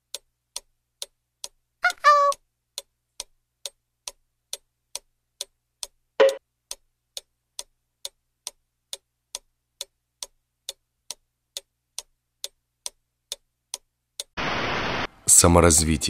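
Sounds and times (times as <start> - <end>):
clock ticking: 0.0 - 14.4
loud steady sound: 14.4 - 15.4.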